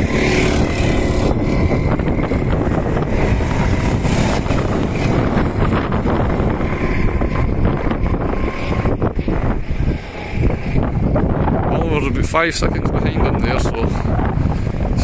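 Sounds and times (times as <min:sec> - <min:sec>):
racing kart engine passing: 0:00.0 - 0:11.8
wind buffeting microphone: 0:00.0 - 0:15.0.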